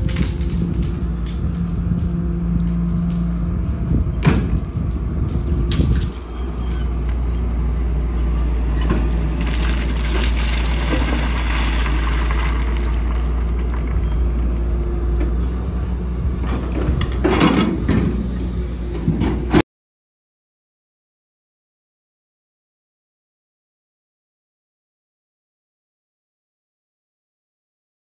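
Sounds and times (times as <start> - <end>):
excavator diesel engine running: 0.0 - 19.6.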